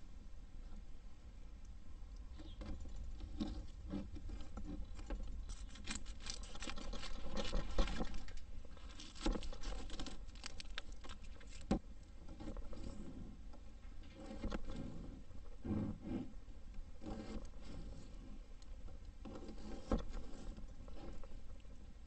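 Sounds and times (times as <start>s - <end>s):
onion skin crackling: 4.9s - 11.7s.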